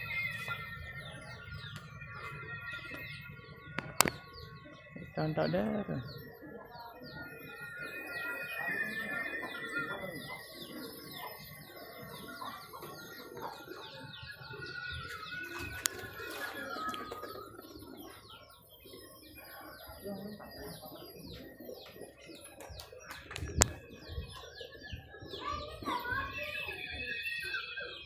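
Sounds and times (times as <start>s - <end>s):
birds chirping rapidly: 0.0s - 28.0s
pigeon wings flapping: 15.4s - 17.8s.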